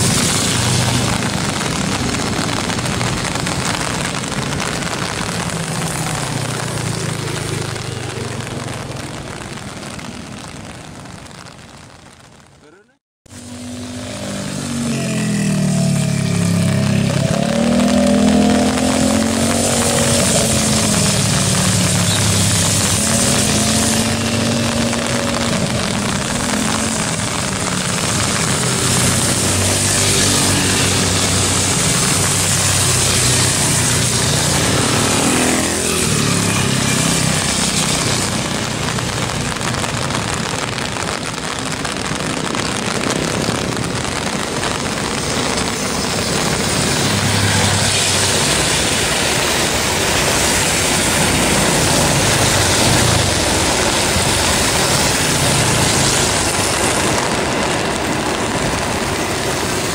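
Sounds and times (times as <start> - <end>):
high-speed train passing: 28.8 - 38.6, 46.2 - 59.9.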